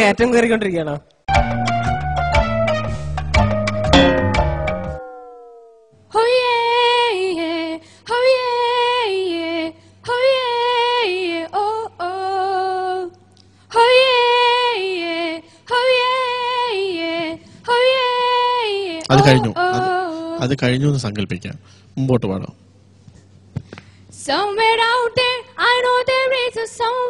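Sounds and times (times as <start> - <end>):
high-pitched voice singing: 19.0 - 20.5.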